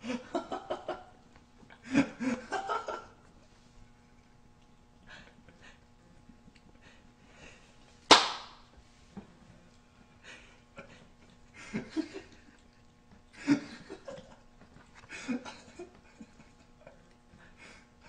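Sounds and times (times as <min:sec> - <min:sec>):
sharp slap-like knock: 0:08.1 - 0:08.6
puppy chewing and snuffling: 0:14.2 - 0:15.1.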